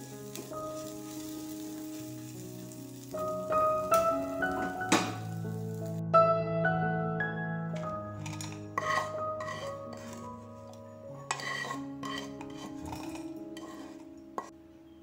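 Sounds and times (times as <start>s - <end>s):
soft background music: 0.0s - 15.0s
spatula scraping frying pan: 0.2s - 3.1s, 7.8s - 14.6s.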